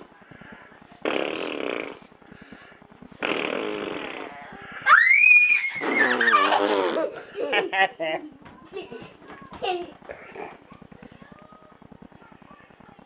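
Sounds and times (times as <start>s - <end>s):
toddler high squeal: 4.9s - 6.6s.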